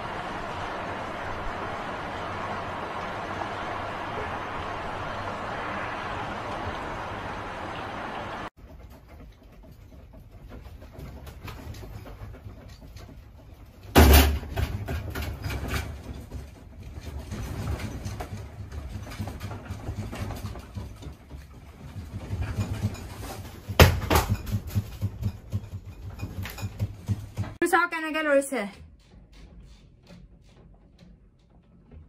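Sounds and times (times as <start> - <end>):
earthquake rumble: 0.0 - 8.6.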